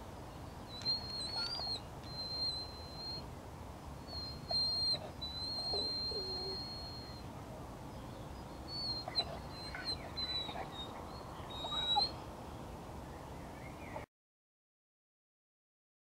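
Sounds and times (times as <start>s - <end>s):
birds chirping: 0.0s - 14.0s
sliding bird calls: 0.8s - 3.2s, 4.1s - 7.2s.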